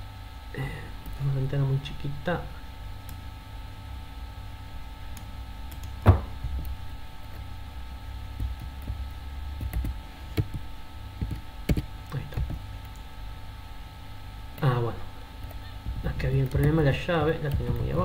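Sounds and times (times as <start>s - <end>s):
steady low hum: 0.0s - 18.0s
thump: 6.0s - 6.3s
keyboard and mouse clicks: 11.2s - 13.0s.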